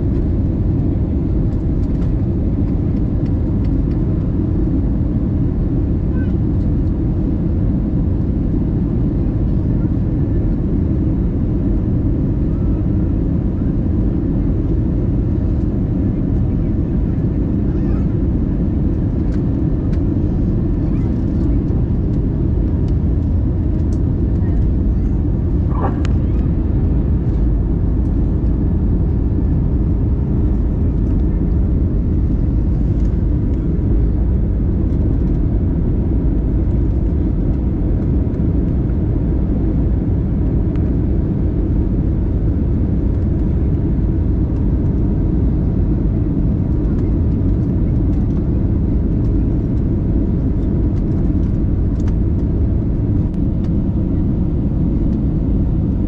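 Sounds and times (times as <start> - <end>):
airliner cabin engine rumble: 0.0 - 56.0.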